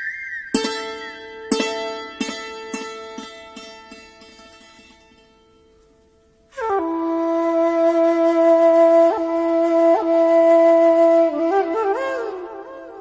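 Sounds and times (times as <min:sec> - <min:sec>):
flute melody: 0:00.0 - 0:02.2, 0:06.5 - 0:13.0.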